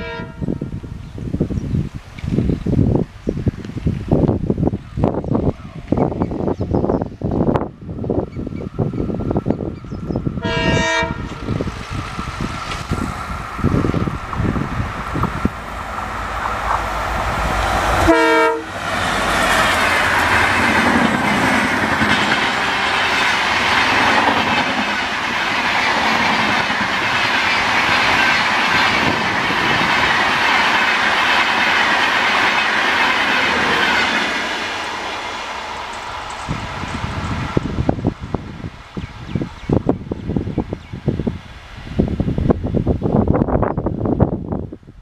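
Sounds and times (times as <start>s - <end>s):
train horn: 0.0s - 0.8s, 10.4s - 11.4s, 18.0s - 18.9s, 22.4s - 23.5s
diesel locomotive engine rumbling: 0.0s - 45.0s
train wheel and rail noise: 0.0s - 45.0s.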